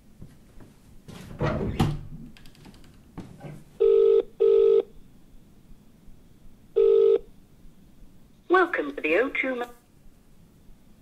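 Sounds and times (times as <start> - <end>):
phone ringback beeps: 3.8 - 4.9, 6.8 - 7.3.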